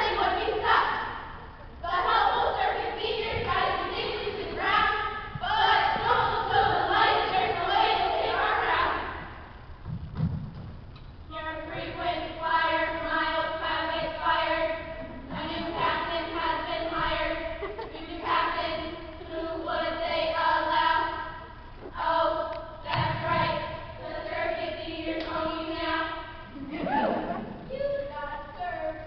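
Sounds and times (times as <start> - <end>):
group singing in unison: 0.0 - 9.4, 11.7 - 21.4.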